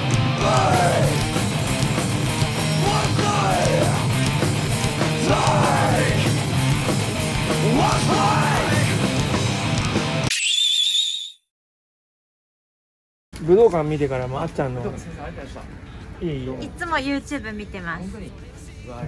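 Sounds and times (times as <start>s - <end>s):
punk rock band playing: 0.0s - 10.3s.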